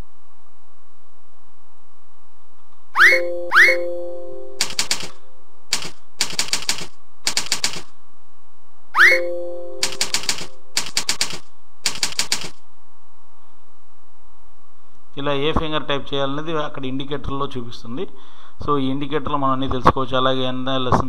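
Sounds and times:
chime: 3.0 - 4.6, 9.2 - 10.0
keypad key clicks: 4.6 - 5.1, 5.7 - 7.8, 9.8 - 12.5.

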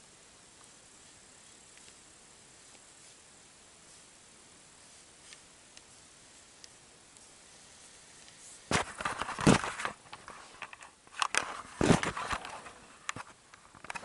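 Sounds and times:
crunching and knocking: 8.7 - 12.6.

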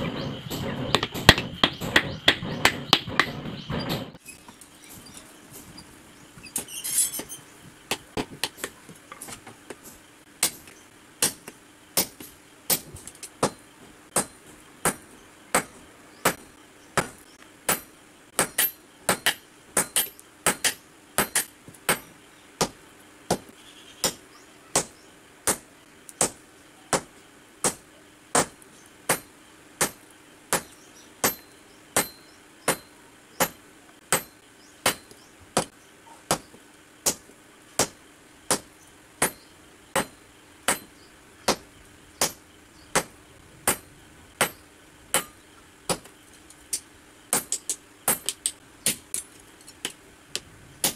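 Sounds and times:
hammer striking iron on anvil: 10.4 - 16.4, 17.7 - 22.1, 29.1 - 35.7, 37.8 - 39.4, 40.0 - 40.9, 42.2 - 46.1, 47.3 - 49.2.

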